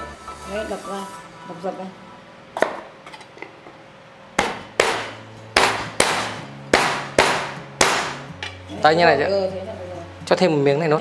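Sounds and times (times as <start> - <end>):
palm striking knife on board: 4.4 - 8.6.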